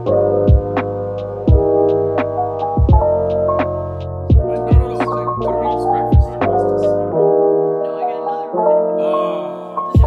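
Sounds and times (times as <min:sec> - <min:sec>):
soft lo-fi piano chords: 0:00.0 - 0:10.0
low drum beat: 0:00.5 - 0:00.9, 0:01.5 - 0:03.7, 0:04.3 - 0:05.1, 0:06.1 - 0:06.9.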